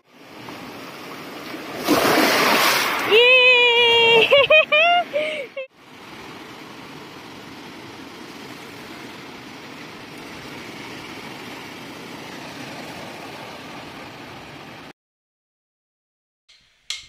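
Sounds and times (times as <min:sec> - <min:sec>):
waves washing onto pebbles: 0:00.1 - 0:03.2, 0:05.8 - 0:14.5.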